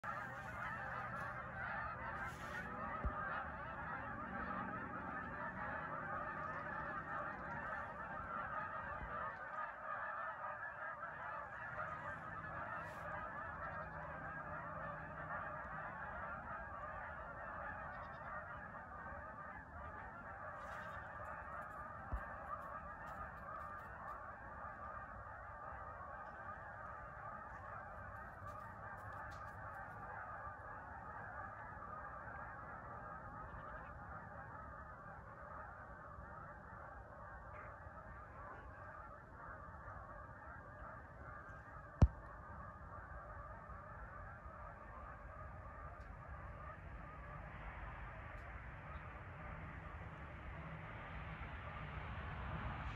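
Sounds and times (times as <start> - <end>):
geese honking: 0.0 - 50.3.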